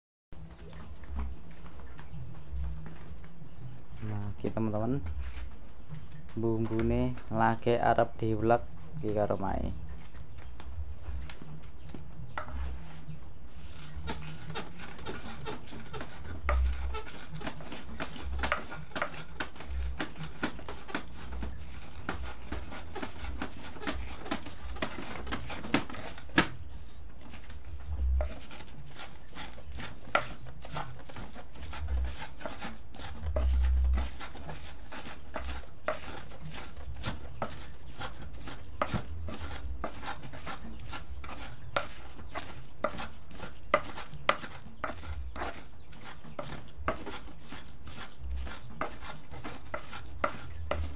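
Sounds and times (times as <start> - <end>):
pestle grinding in mortar: 0.4 - 50.9.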